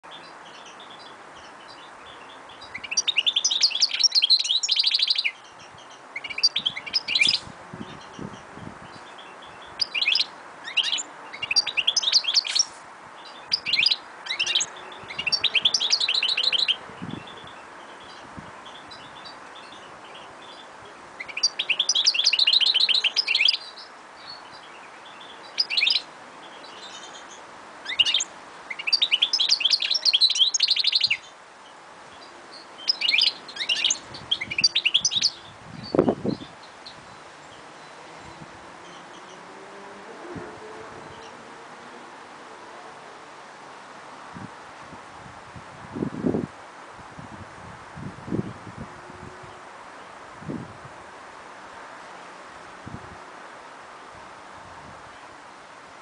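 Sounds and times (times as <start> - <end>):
bird singing high twittering notes: 0.2 - 26.1, 26.7 - 31.3, 32.2 - 37.2.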